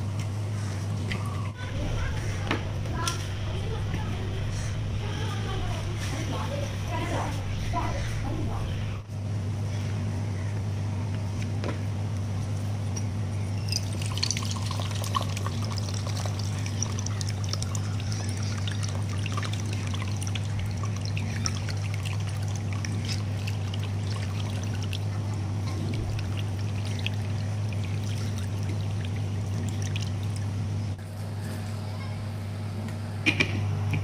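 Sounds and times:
steady low hum: 0:00.0 - 0:34.0
coconut water trickling into tumbler: 0:13.6 - 0:30.7.

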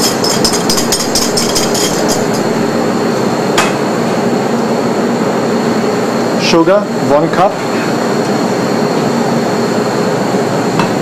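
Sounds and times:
clinks against metal bowl: 0:00.0 - 0:02.6
background hum: 0:00.0 - 0:04.9.

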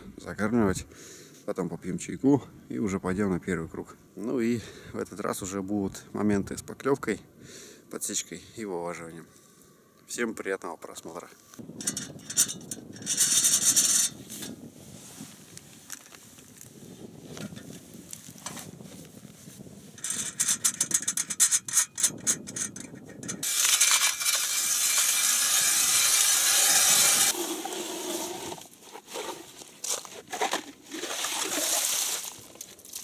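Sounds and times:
ice auger scraping through ice: 0:22.2 - 0:33.0.

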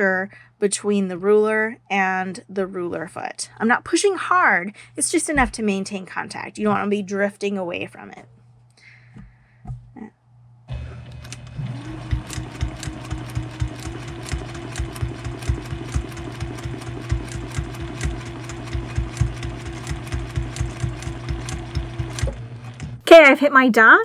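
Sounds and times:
sewing machine running: 0:10.7 - 0:23.0.

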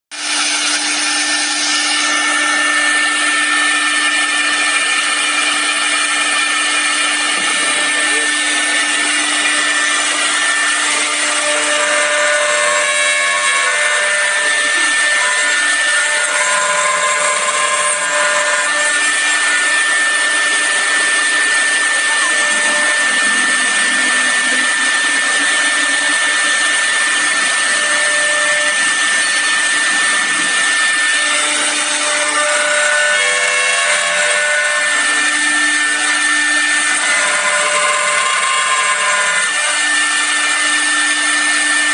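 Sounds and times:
bit cutting wood: 0:00.1 - 0:41.9
router spindle whining: 0:00.1 - 0:41.9.

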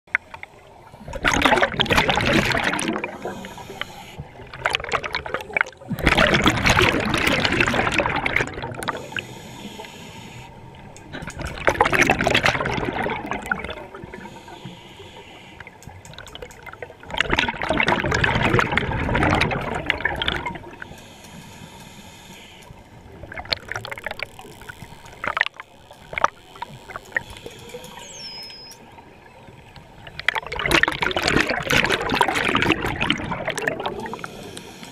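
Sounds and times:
exhaled bubbles rushing: 0:01.0 - 0:09.2, 0:11.0 - 0:14.3, 0:16.1 - 0:20.8, 0:23.1 - 0:27.4, 0:30.0 - 0:34.4
regulator hissing inhalations: 0:03.1 - 0:04.3, 0:08.9 - 0:10.7, 0:14.2 - 0:15.8, 0:20.8 - 0:22.8, 0:34.0 - 0:34.9.

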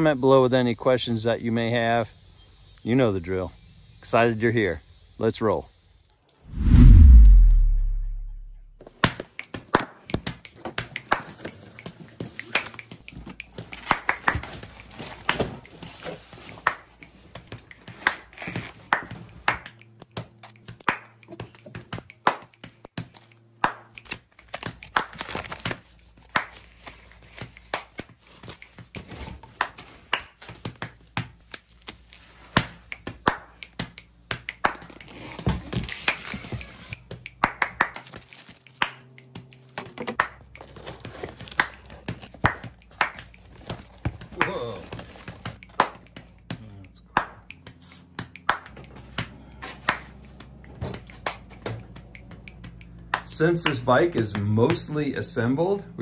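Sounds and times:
foam wrap crinkling and tearing: 0:17.9 - 0:18.9, 0:24.4 - 0:32.8, 0:34.8 - 0:37.0, 0:37.9 - 0:39.0, 0:39.6 - 0:45.6.

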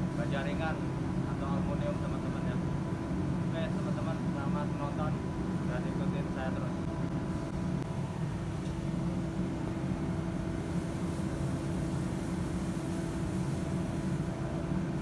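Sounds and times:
fume extraction machinery drone: 0:00.0 - 0:15.0.

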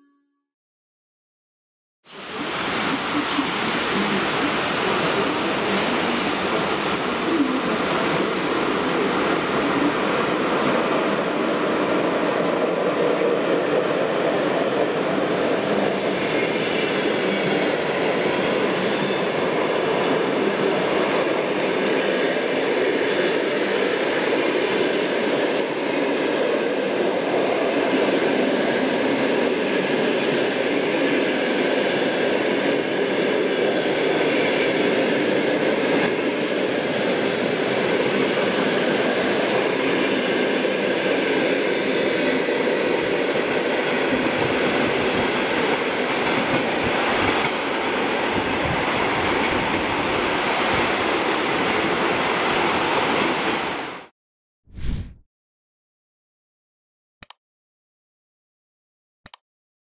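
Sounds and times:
train wheels rumbling on rails: 0:32.7 - 0:53.4.

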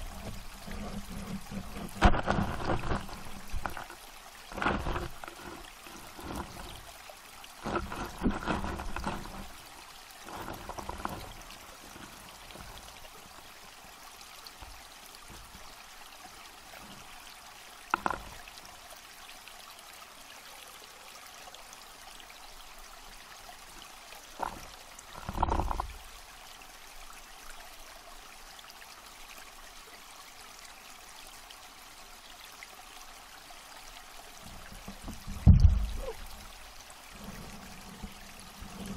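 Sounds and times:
knocks and bumps: 0:00.1 - 0:03.9, 0:34.7 - 0:36.2.

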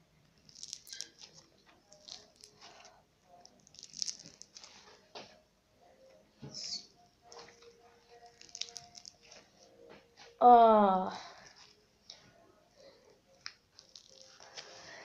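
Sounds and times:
slime squeezed by hand: 0:03.5 - 0:04.8, 0:08.2 - 0:09.4, 0:13.8 - 0:14.7.

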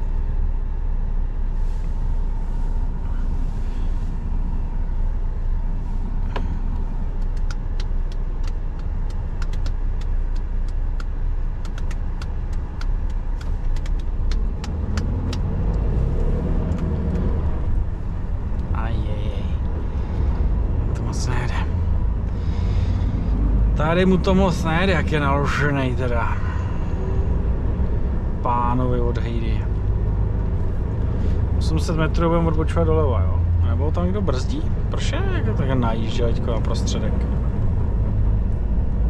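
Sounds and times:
diesel engine and road drone: 0:00.0 - 0:39.0
light sharp clicks: 0:06.3 - 0:17.3.

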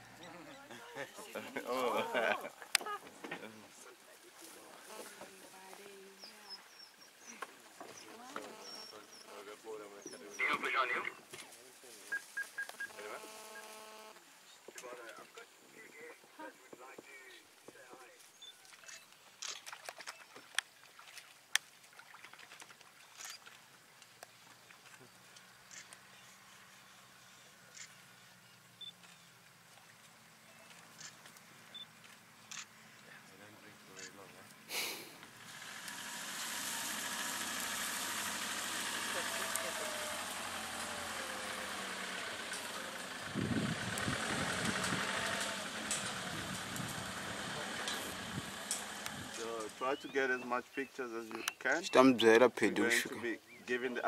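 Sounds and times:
wet clicks and patters in mud: 0:18.4 - 0:26.1, 0:28.9 - 0:32.7
vehicle engine idling: 0:25.2 - 0:50.0.

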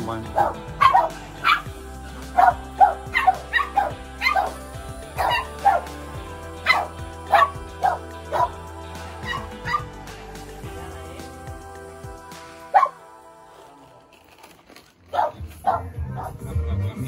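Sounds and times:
background music: 0:00.0 - 0:17.0
dog barking: 0:00.3 - 0:01.7, 0:02.4 - 0:06.0, 0:06.6 - 0:08.6, 0:09.2 - 0:09.9, 0:12.7 - 0:13.0, 0:15.1 - 0:16.4.

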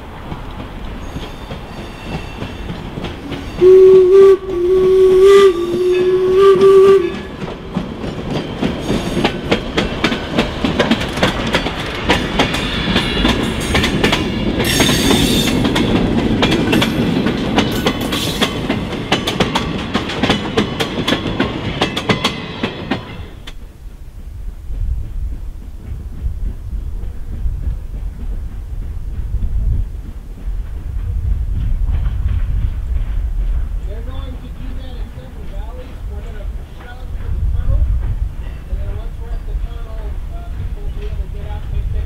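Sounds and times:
wheels clicking over rail joints: 0:00.0 - 0:03.6, 0:07.1 - 0:23.7
steam hiss: 0:00.0 - 0:16.0
train rumble: 0:00.0 - 0:42.0
steam whistle blasts: 0:03.4 - 0:07.3.

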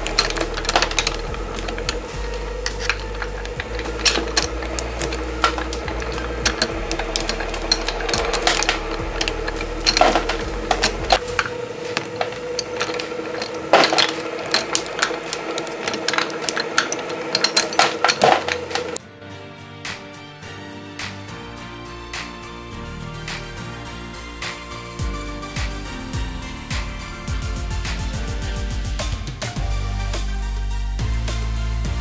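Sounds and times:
low rumble: 0:00.0 - 0:15.1
plastic clicking and crunching: 0:00.0 - 0:19.0
shredder humming: 0:00.0 - 0:19.0.

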